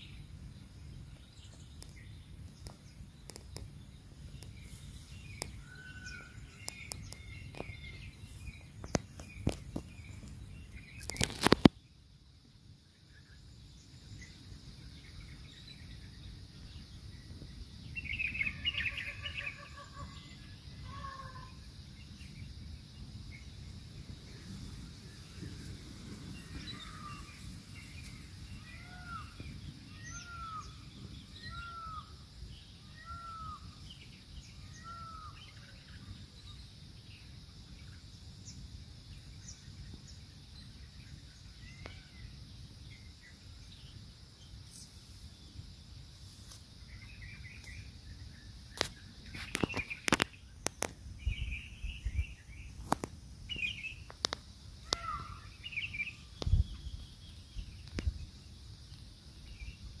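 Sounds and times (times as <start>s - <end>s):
wild birds calling: 1.2s - 11.7s, 17.9s - 36.4s, 46.8s - 58.0s.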